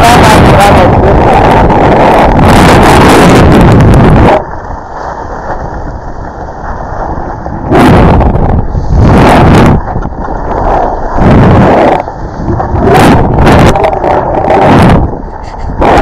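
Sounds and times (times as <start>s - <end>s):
wind on microphone: 0.0s - 16.0s.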